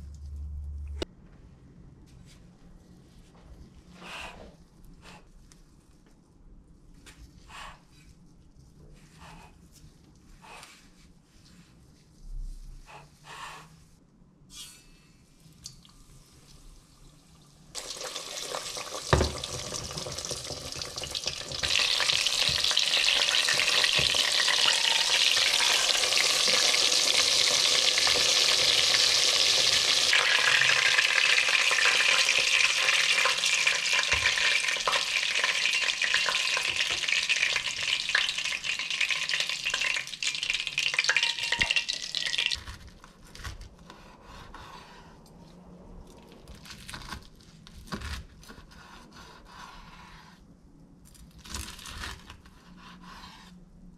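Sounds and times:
food sizzling in hot oil: 17.8 - 42.6.

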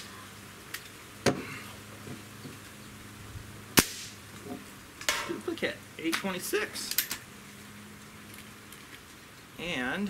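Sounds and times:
air rifle shot: 3.8 - 4.2.

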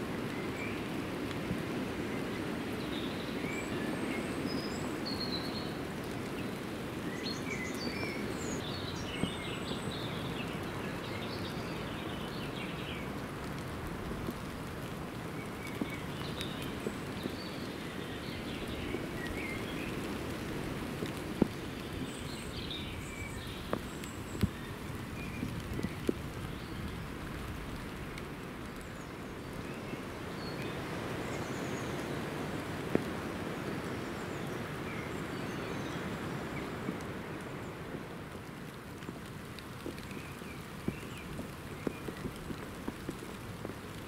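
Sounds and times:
gentle rain falling: 0.0 - 44.0
birds chirping: 15.2 - 27.6.

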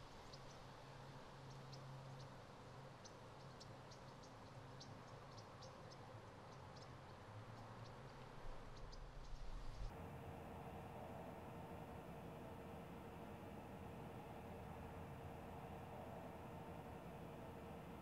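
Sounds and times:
faint low hum: 8.3 - 18.0.

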